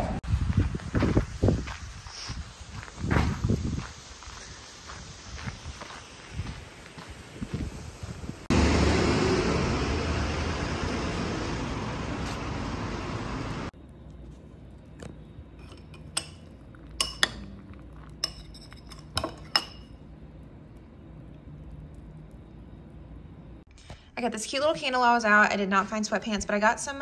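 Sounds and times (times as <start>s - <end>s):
loud rushing noise: 8.4s - 13.7s
spoon clinking against ceramic bowl: 17.0s - 17.5s, 18.2s - 19.9s.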